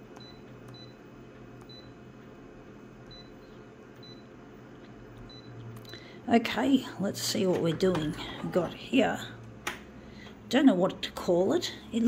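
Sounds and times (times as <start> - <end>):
high key-press beeps: 0.0 - 1.0, 1.6 - 2.0, 3.0 - 4.3, 5.2 - 6.0.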